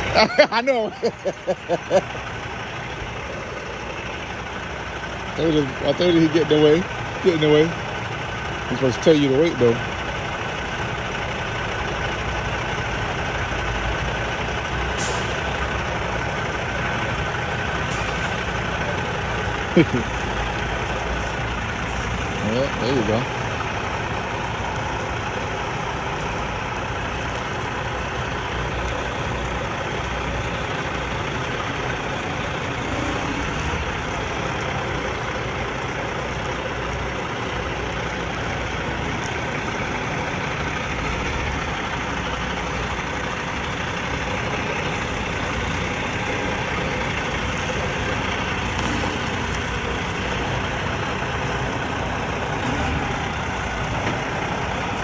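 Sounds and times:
diesel truck engine idling: 0:00.0 - 0:55.0.

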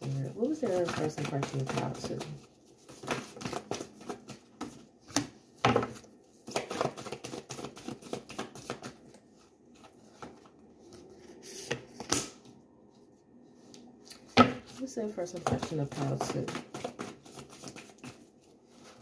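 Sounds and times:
cards being shuffled: 0:00.4 - 0:05.4, 0:06.4 - 0:09.1, 0:14.0 - 0:19.0.

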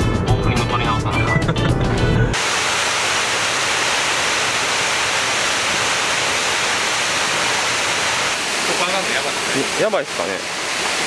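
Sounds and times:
water rushing from waterfall: 0:02.4 - 0:11.0.

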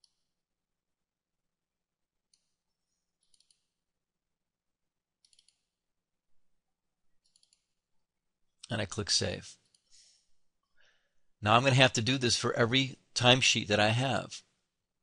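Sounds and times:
faint mouse clicks: 0:03.2 - 0:03.7, 0:05.2 - 0:05.7, 0:07.2 - 0:07.7.

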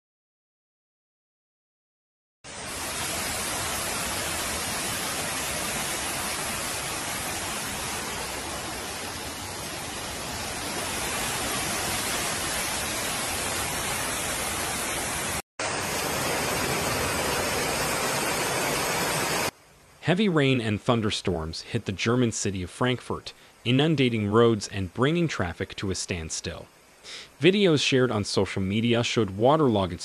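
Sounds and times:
floodwater rushing: 0:02.5 - 0:19.5.

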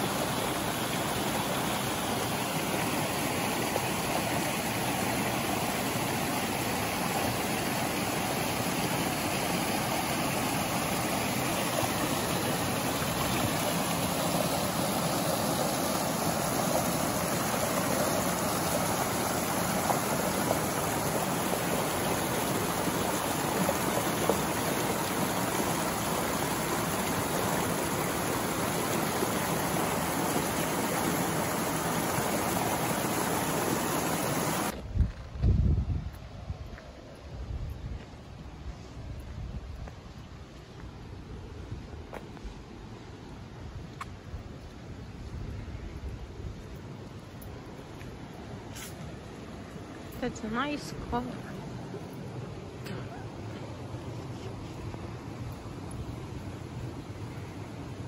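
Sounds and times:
water rushing over rocks: 0:00.0 - 0:34.9, 0:46.7 - 0:58.0.

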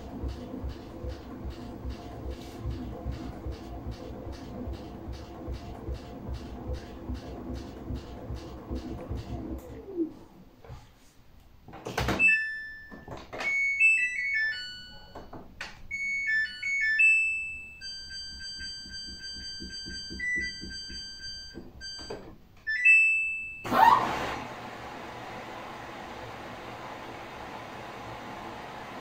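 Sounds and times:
washing machine rushing noise: 0:00.0 - 0:10.1, 0:23.7 - 0:29.0.

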